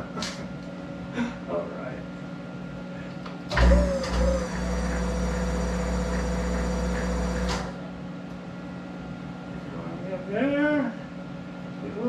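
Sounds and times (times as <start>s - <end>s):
lathe starting with thump: 3.5s - 7.8s
lathe running with hum and whine: 3.5s - 8.0s.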